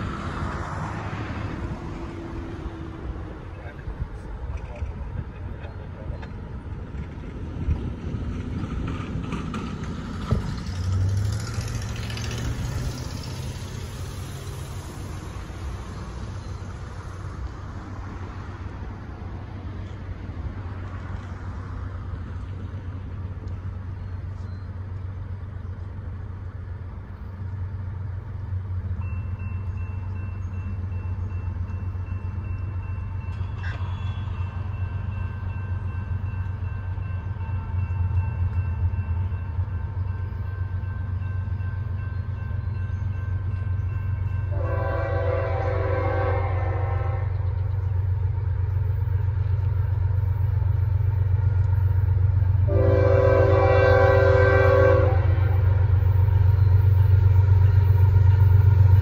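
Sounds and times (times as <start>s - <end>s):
vehicle passing: 10.2s - 18.5s.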